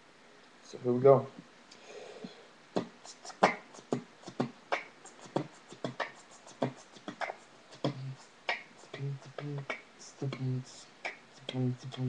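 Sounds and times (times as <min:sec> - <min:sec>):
beatboxing percussive hits: 0:02.8 - 0:12.0.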